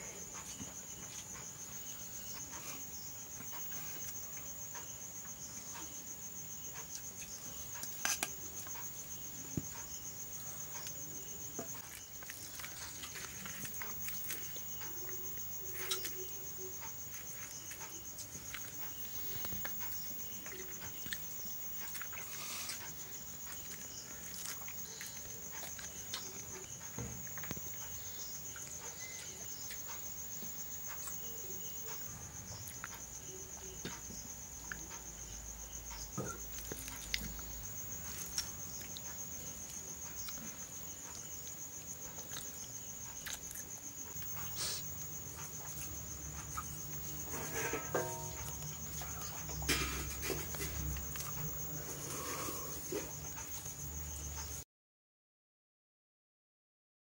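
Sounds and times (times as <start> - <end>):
crickets trilling: 0.0 - 54.6.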